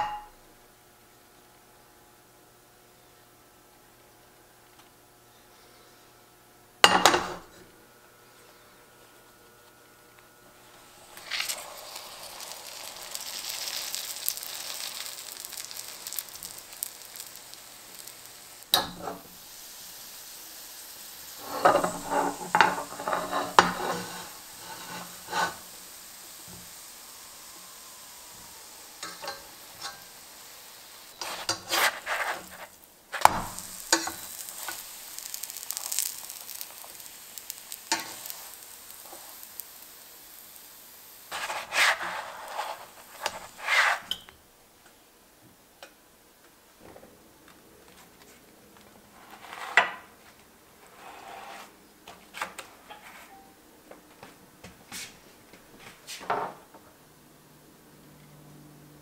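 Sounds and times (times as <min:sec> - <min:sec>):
food sizzling in skillet: 0:00.0 - 0:00.4, 0:10.3 - 0:44.3
spatula scraping and knocking pan: 0:21.4 - 0:26.7, 0:31.1 - 0:37.0.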